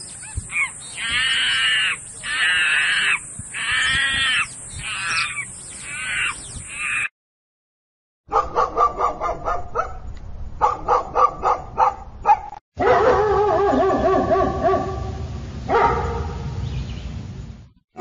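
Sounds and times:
dog barking: 8.3 - 10.0, 10.6 - 16.4.

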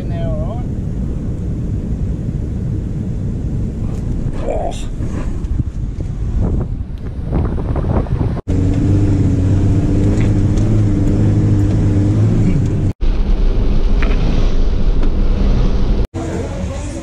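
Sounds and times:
diesel engine droning: 8.5 - 17.0.

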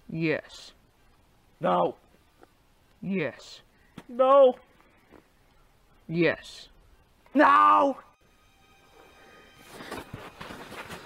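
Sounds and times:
faint background music: 6.0 - 11.0.

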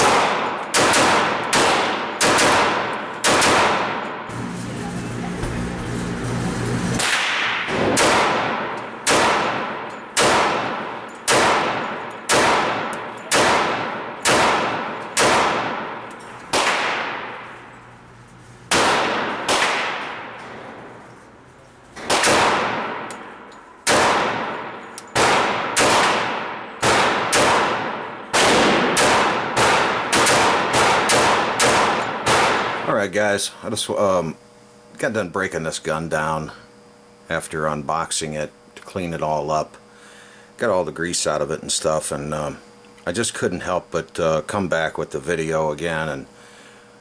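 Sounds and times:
pistol shots echoing indoors: 0.0 - 4.3, 7.0 - 17.8, 18.7 - 20.9, 22.0 - 32.9.

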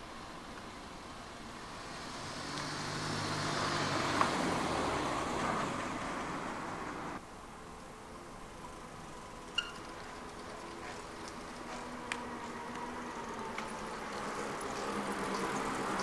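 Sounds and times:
car passing: 1.3 - 7.2, 9.3 - 16.0.

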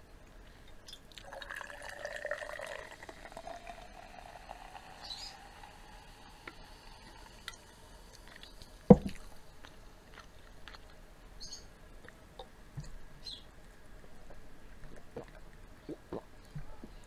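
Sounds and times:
water pouring into a jar: 1.1 - 9.3
object thudding on table: 8.9 - 9.2.

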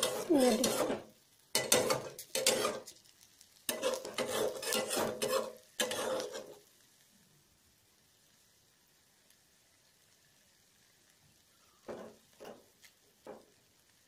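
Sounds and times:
metal spatula scraping pan: 0.0 - 2.9, 3.7 - 6.6.

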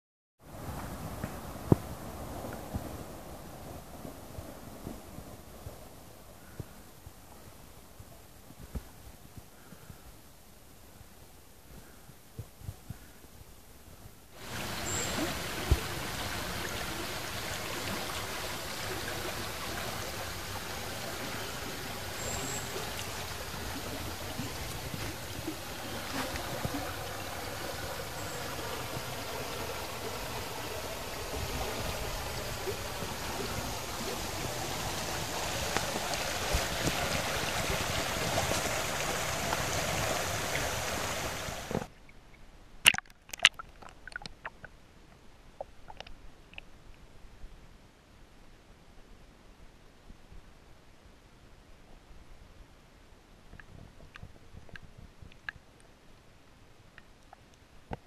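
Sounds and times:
flowing spring water: 14.4 - 42.2, 42.8 - 44.8, 45.6 - 46.7.

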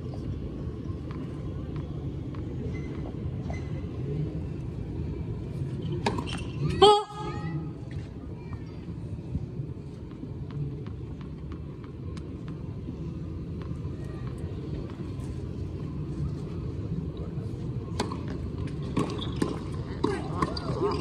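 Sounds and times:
tennis ball bouncing on court: 18.0 - 21.0.

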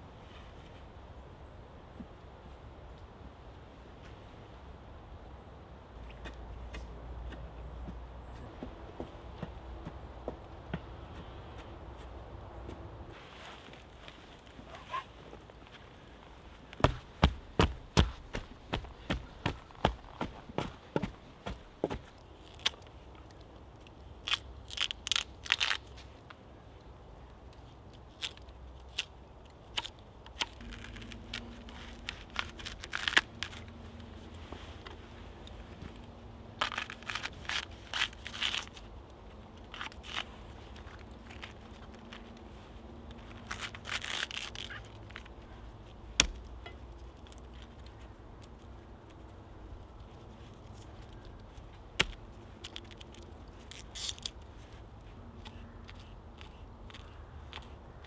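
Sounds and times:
garlic skins crinkling: 22.2 - 26.0, 28.0 - 49.2, 49.8 - 57.8.

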